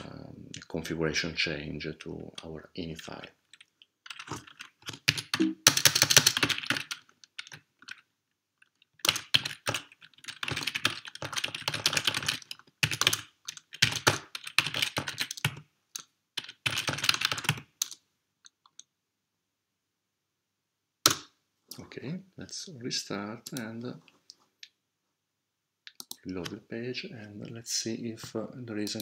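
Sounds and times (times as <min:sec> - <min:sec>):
computer keyboard typing: 0:03.5 - 0:08.0, 0:08.7 - 0:18.9, 0:25.9 - 0:26.5, 0:28.8 - 0:29.0.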